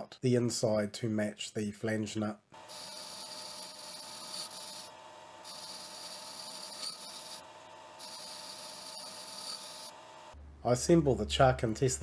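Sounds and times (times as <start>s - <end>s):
lathe humming: 2.6s - 10.4s.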